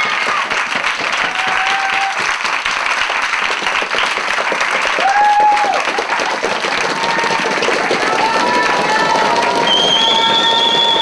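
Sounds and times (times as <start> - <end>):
crowd applauding: 0.0 - 11.0
long held shout: 1.3 - 2.2, 5.0 - 5.9, 7.0 - 11.0.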